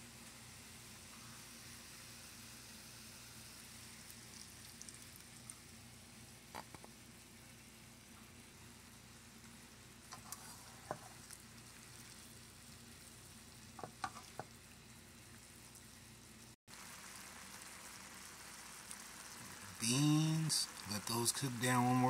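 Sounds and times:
food frying faintly in a pan: 0.0 - 22.0
beans bubbling at a simmer: 0.1 - 22.0.

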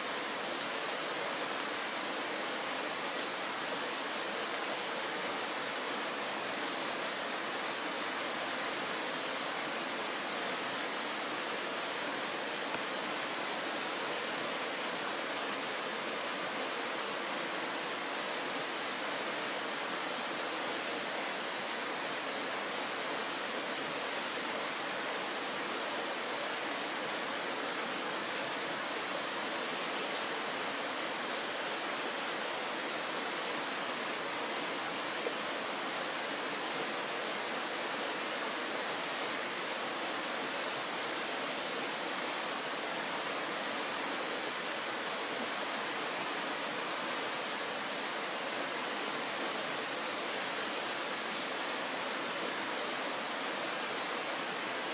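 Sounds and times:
stream rushing over stones: 0.0 - 54.9.

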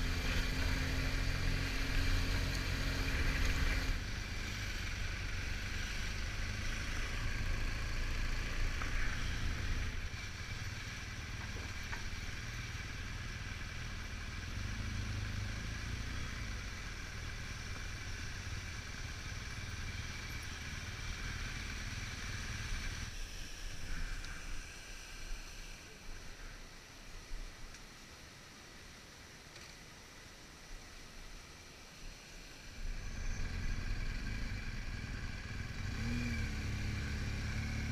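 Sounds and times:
motorcycle engine rumbling: 0.0 - 23.1.

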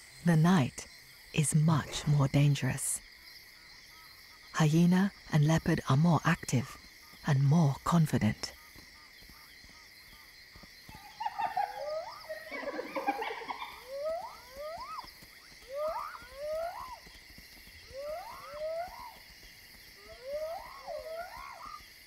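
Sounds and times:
high insect trill: 0.0 - 22.0
rough animal calls: 10.9 - 17.2, 17.8 - 22.0
hyenas whooping: 11.0 - 17.0, 17.9 - 19.2, 20.0 - 21.9.

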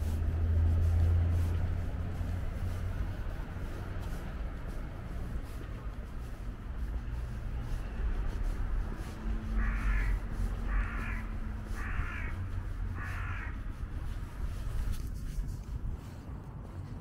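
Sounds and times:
steady low rumble: 0.0 - 17.0
bird giving harsh calls: 9.6 - 13.6.

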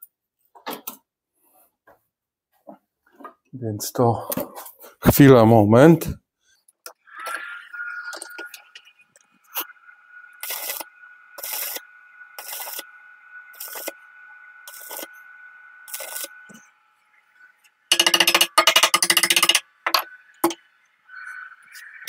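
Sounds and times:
steady high whine: 7.3 - 22.0
arc welding crackle: 10.4 - 12.9, 13.5 - 15.2, 15.9 - 16.4
rapid metallic knocking: 17.9 - 19.6.

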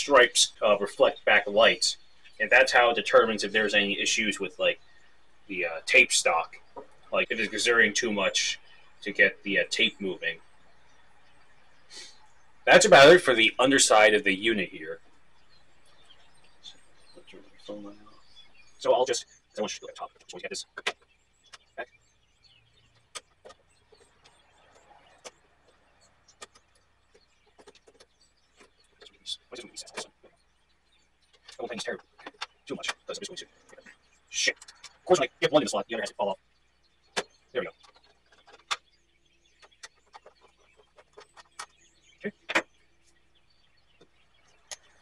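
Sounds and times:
plastic clacks: 23.0 - 29.2, 31.3 - 33.9, 37.2 - 38.9, 39.6 - 41.8, 42.4 - 42.7
hands clicking and tapping casing: 26.3 - 29.2, 31.3 - 33.8, 37.2 - 38.9, 39.6 - 41.8.

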